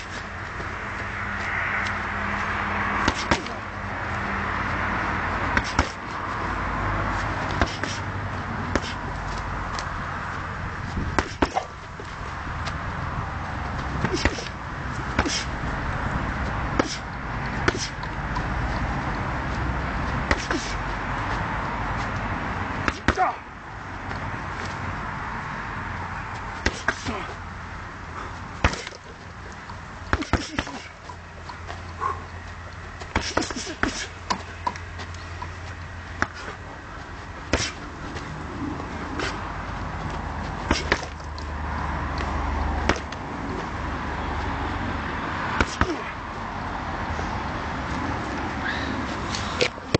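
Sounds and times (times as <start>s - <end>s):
fist smacking speed ball: 3.0s - 3.6s, 5.5s - 6.0s, 11.2s - 11.7s, 28.6s - 29.0s, 42.8s - 43.2s, 45.6s - 46.1s.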